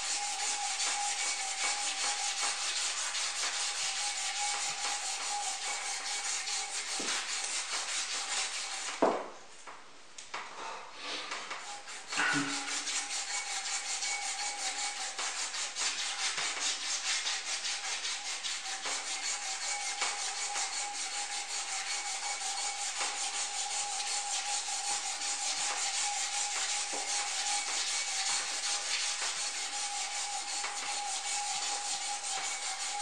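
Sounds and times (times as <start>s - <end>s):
rubbing hiss of polishing metal: 11.0s - 33.0s.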